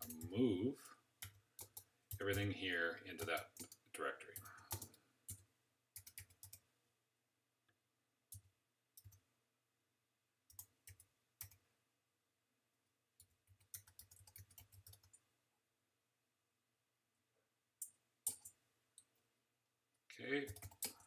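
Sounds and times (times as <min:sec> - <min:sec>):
computer keyboard keystrokes: 0:00.0 - 0:00.3, 0:04.4 - 0:05.4, 0:06.0 - 0:06.6, 0:13.2 - 0:15.2, 0:17.8 - 0:18.6, 0:20.5 - 0:21.0.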